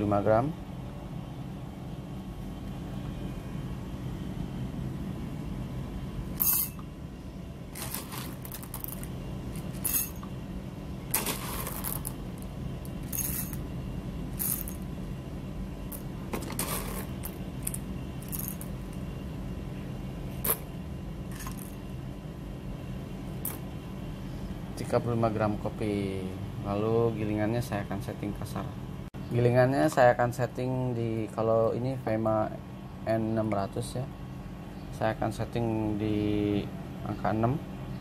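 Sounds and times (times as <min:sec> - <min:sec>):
steady low hum: 0:00.0 - 0:38.0
coffee beans rattling into glass: 0:13.0 - 0:13.6, 0:14.4 - 0:14.8.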